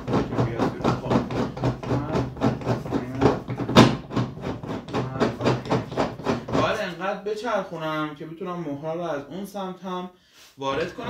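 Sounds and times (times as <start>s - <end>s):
knocking and clattering of tray: 0.0s - 6.8s.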